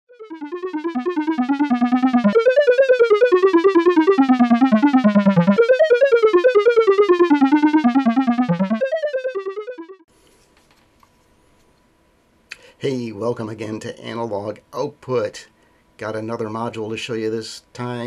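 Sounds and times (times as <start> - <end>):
fast synthesizer melody: 0.1 - 10.1.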